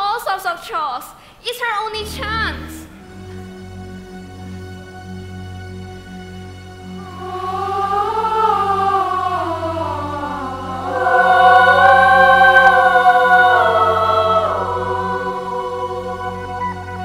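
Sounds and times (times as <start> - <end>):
choir singing long held notes: 1.9 - 17.0.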